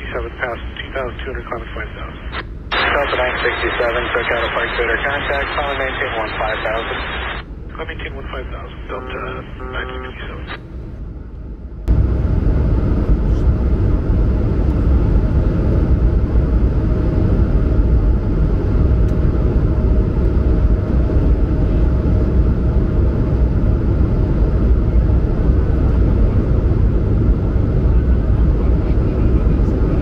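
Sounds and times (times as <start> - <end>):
jet engine cabin drone: 0.0 - 30.0.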